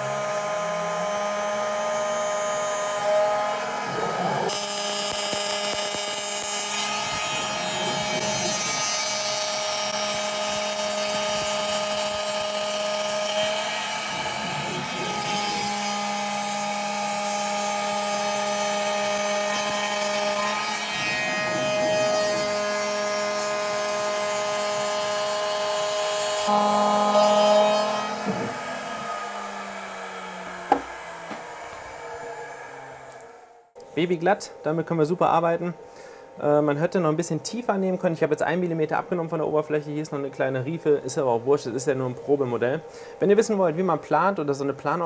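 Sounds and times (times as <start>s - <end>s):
cutter rasping wood: 0.0s - 33.6s
router spindle whining: 0.0s - 33.8s.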